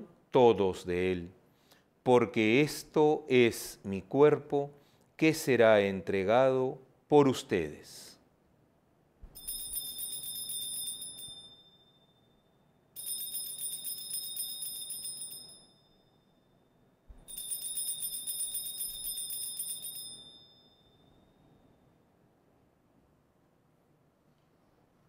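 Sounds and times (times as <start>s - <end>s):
altar bells ringing: 9.4s - 12.3s, 13.0s - 16.4s, 17.3s - 21.7s.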